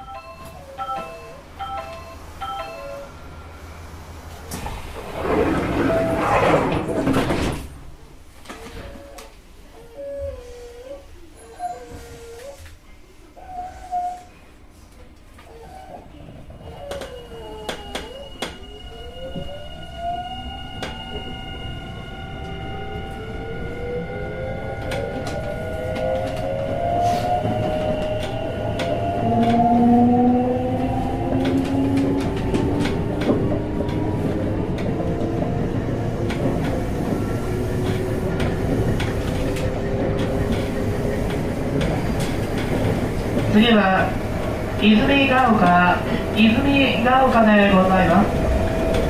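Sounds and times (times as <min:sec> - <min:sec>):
train wheels clicking over rail joints: 0:31.2 - 0:43.6.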